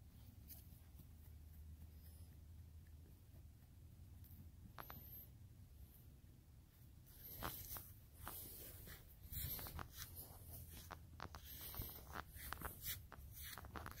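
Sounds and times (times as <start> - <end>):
footsteps on dry grass: 7.2 - 14.0.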